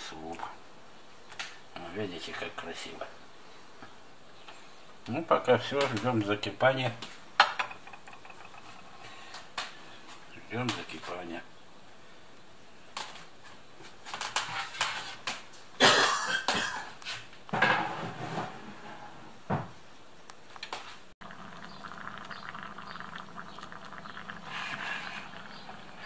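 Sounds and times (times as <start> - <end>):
soup bubbling: 21.2 - 26.0.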